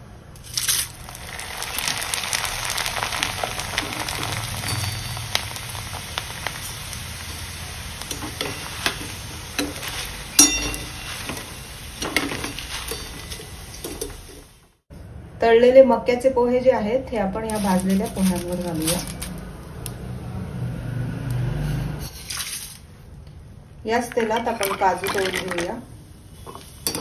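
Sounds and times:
crackling sizzle of deep-frying: 0.3 - 14.8, 17.4 - 20.2, 23.9 - 27.0
strainer clinking against pan: 9.6 - 14.0.

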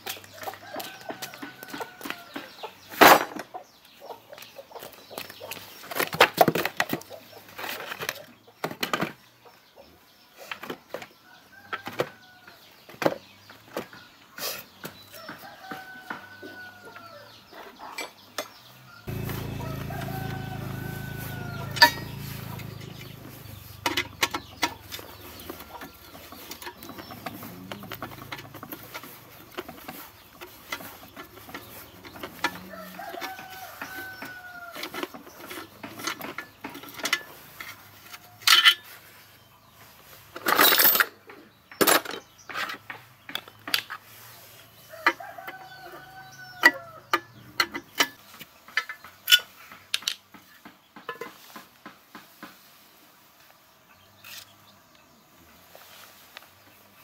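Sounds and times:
rooster crowing: 19.0 - 23.6, 32.4 - 34.8.

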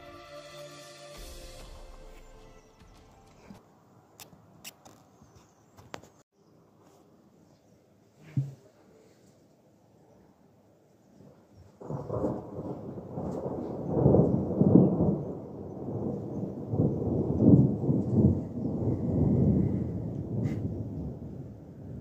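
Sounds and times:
rolling thunder: 11.8 - 22.0.

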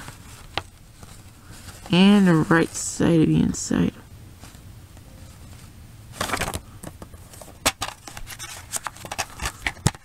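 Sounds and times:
paper booklet rustling: 0.0 - 3.5, 4.4 - 10.0.

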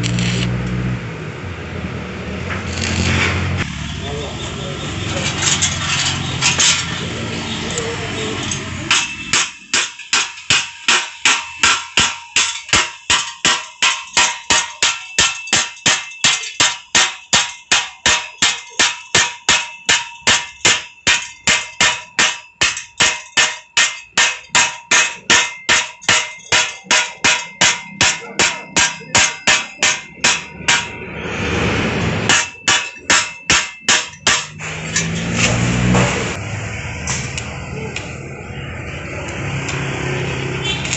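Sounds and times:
hammer striking metal with ring: 7.7 - 36.4.

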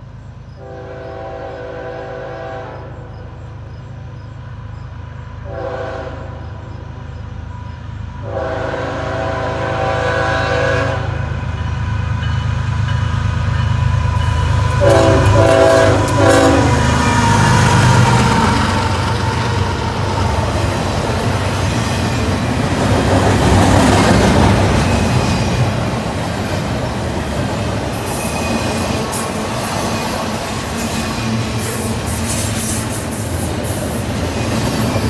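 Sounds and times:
diesel locomotive engine rumble: 0.0 - 35.0
rolling clatter of train cars: 0.0 - 35.0
train horn: 0.6 - 3.4, 5.4 - 6.8, 8.2 - 11.7, 14.1 - 19.0
wheel squeal: 28.0 - 29.2.

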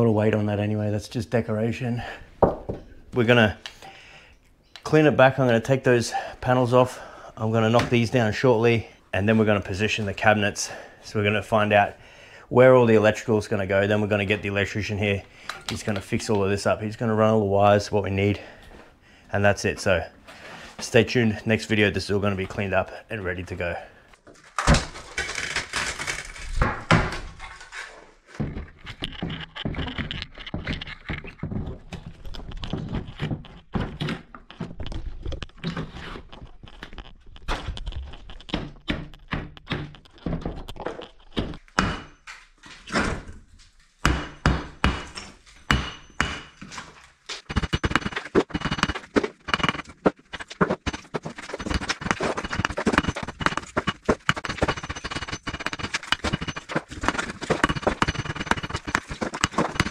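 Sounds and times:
thuds and clatter of wall demolition: 24.5 - 35.7, 44.1 - 59.9.

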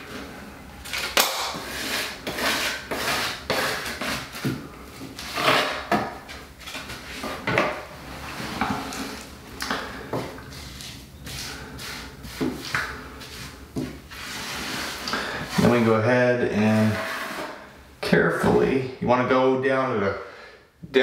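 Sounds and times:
taping knife scraping: 0.8 - 4.5, 5.2 - 6.0, 10.5 - 15.9, 16.7 - 17.6.

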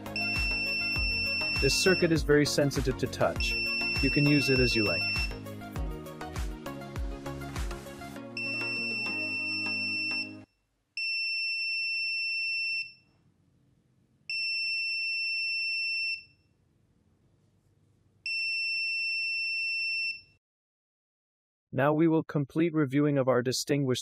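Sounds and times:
high-pitched buzzer beeps: 0.1 - 2.2, 3.4 - 5.4, 8.4 - 10.4.

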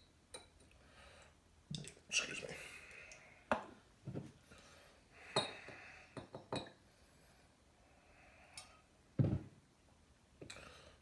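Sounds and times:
glass clinks: 6.2 - 6.8.

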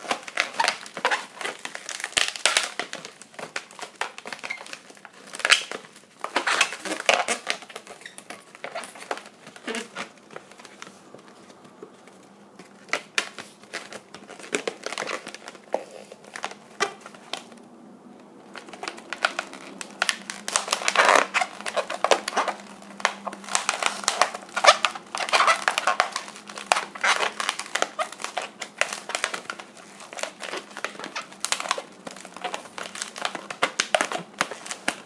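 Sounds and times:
rubber balloon squeaking: 0.0 - 2.7, 3.7 - 10.8, 18.6 - 34.8.

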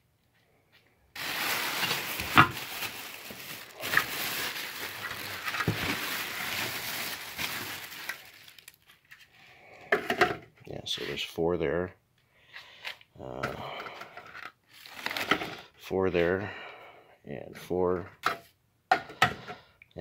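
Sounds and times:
plastic bag rustling: 1.2 - 9.3, 14.7 - 15.6.

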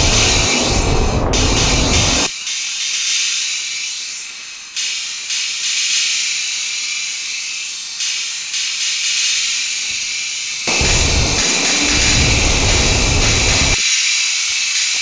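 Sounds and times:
loud high-pitched hiss: 0.0 - 5.1, 9.7 - 14.9.

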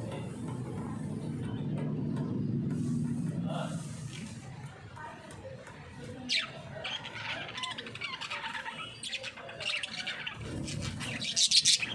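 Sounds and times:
budgerigars chattering and chirping: 6.3 - 11.9.

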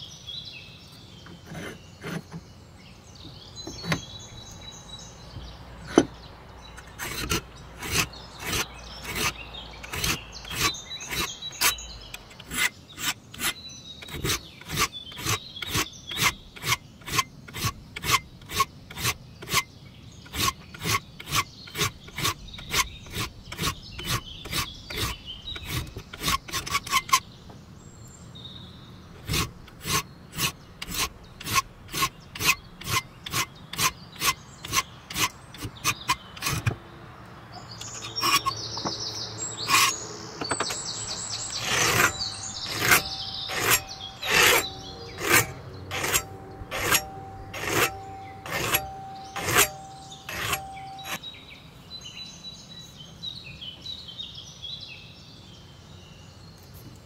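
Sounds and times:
file rasping on steel blade: 1.3 - 2.4, 6.8 - 19.7, 20.3 - 27.2, 29.2 - 36.8, 37.8 - 38.6, 39.6 - 40.0, 41.1 - 51.2.

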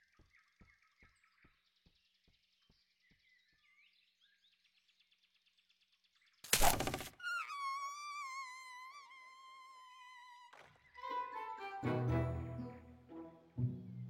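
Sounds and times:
small birds chirping: 0.0 - 11.2.

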